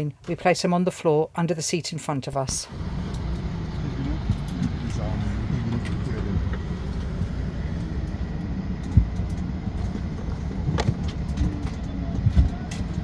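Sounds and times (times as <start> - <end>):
airliner cabin rumble: 2.7 - 13.0.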